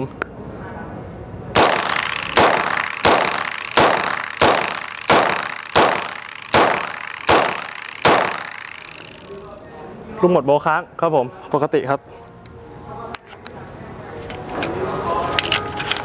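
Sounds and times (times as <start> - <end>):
gunshots with echo: 1.6 - 9.2.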